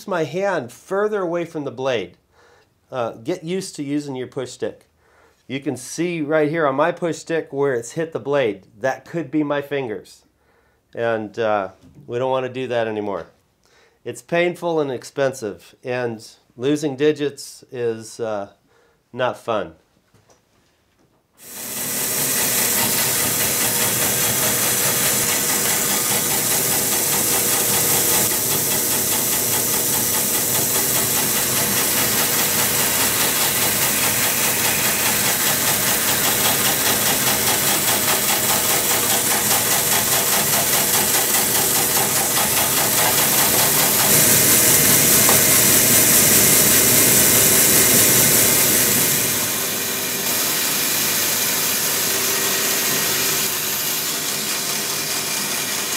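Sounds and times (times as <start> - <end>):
bandsaw cutting through log: 21.4 - 55.9.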